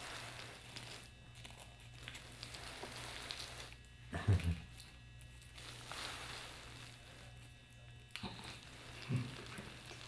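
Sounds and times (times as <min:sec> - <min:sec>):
piglet munching cereal: 0:00.0 - 0:10.0
steady low hum: 0:00.0 - 0:10.0.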